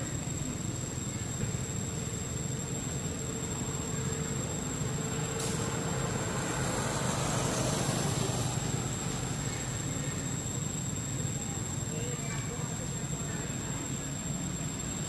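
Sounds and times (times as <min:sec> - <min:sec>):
vehicle passing on road: 0:04.8 - 0:10.6.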